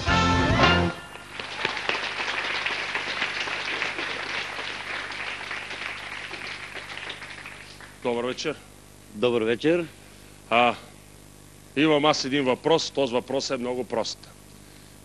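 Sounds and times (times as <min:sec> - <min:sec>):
studio band entrance music: 0:00.0 - 0:05.8
studio audience applauding: 0:00.9 - 0:08.3.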